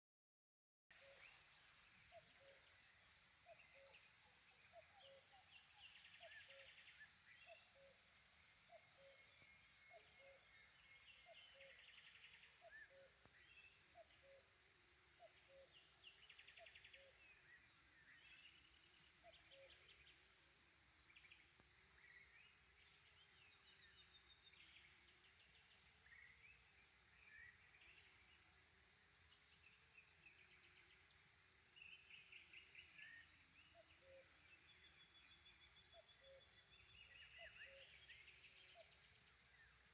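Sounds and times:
songbirds chirping and trilling: 0.9s - 39.9s.

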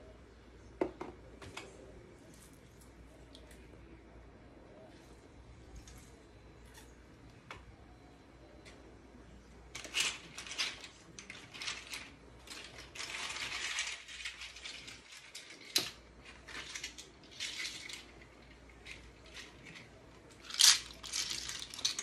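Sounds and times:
kitchen items rattling and scraping: 9.7s - 22.0s.

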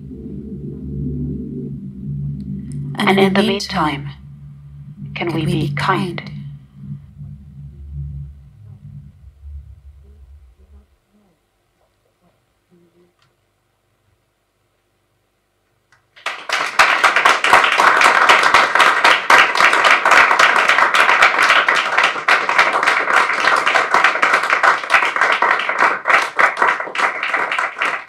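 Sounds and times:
audience applauding: 16.2s - 28.0s.

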